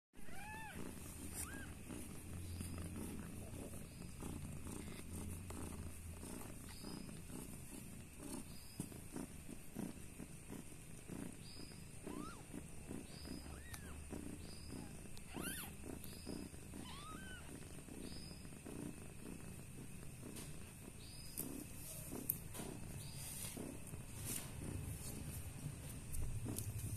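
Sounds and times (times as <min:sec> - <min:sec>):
cat purring: 0:00.2 - 0:26.9
kittens mewing: 0:12.0 - 0:17.5.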